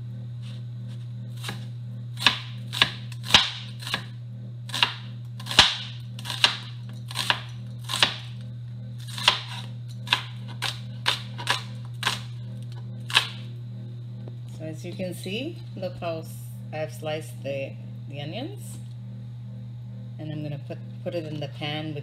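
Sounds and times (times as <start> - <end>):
knife slicing onion on board: 0.4 - 4.1, 4.7 - 8.4, 9.0 - 12.4, 13.1 - 13.4.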